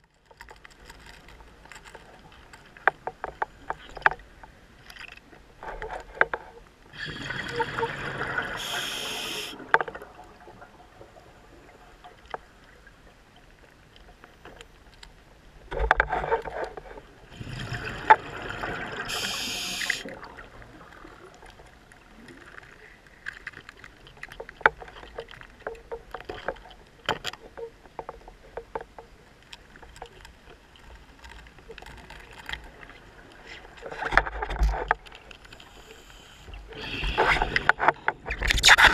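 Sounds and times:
regulator inhale hiss: 8.6 - 9.6, 19.1 - 20.1, 35.6 - 37.7.

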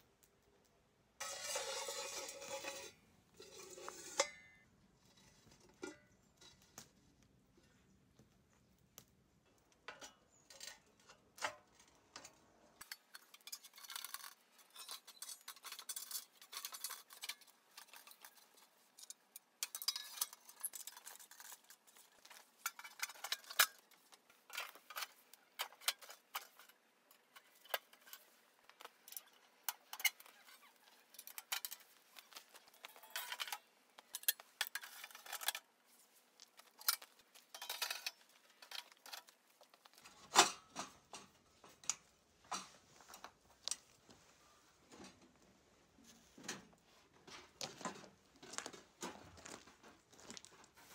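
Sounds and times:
metal parts clinking and knocking: 12.2 - 35.6, 36.6 - 42.0.

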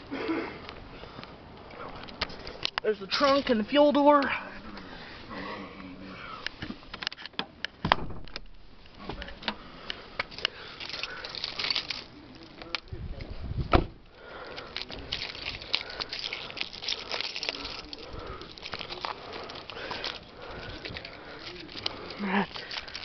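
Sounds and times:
heavy thump: 7.8 - 9.6, 13.6 - 14.0
handling rustle: 8.6 - 13.4, 14.2 - 23.0.

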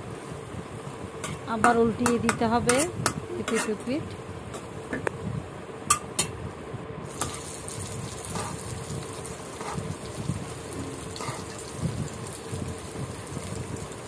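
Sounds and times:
fish sizzling in a pan: 7.1 - 14.0.

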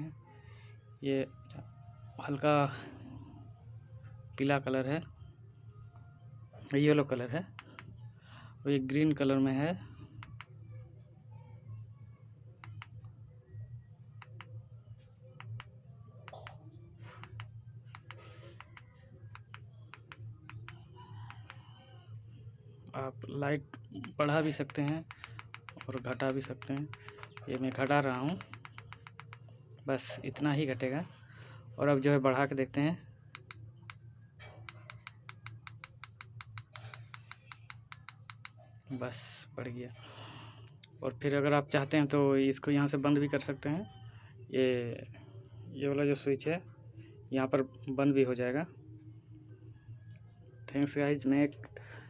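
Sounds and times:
low steady hum: 0.0 - 52.0
plastic push-buttons clicking: 24.0 - 29.4.

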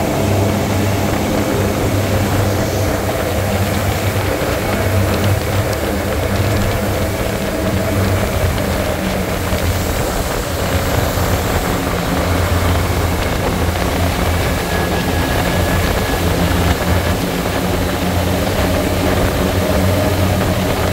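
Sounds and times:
outboard motors droning: 0.0 - 20.9
rush of wake and spray: 0.0 - 20.9.

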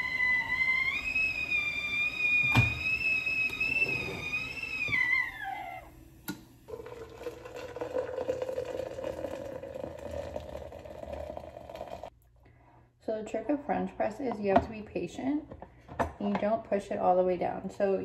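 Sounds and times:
kettle whistling: 0.0 - 12.1
hot water pouring: 6.3 - 12.1.

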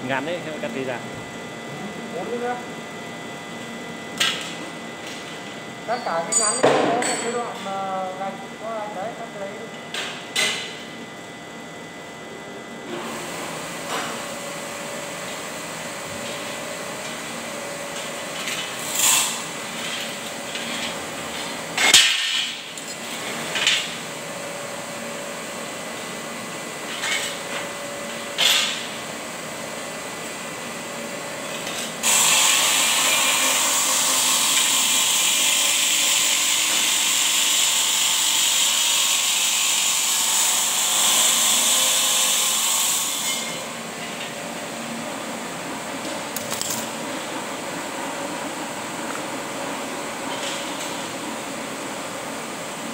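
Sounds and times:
power tool cutting with hiss: 18.7 - 19.6, 32.0 - 43.8.

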